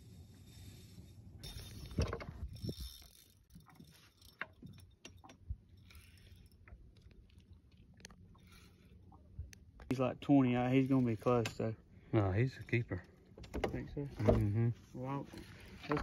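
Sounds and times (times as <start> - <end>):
fishing reel clicking: 0.5 - 4.9.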